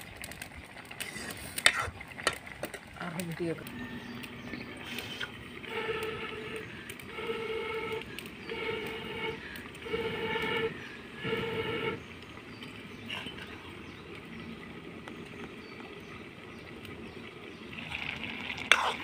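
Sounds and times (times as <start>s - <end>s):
horn blasts: 3.6s - 12.1s.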